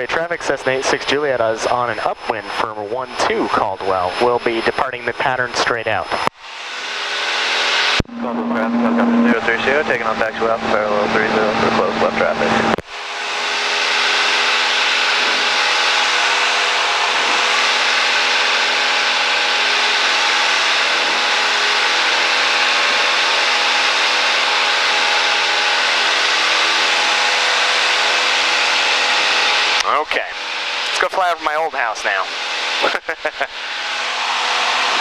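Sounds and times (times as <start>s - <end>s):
small plane engine and propeller: 0.0s - 35.0s.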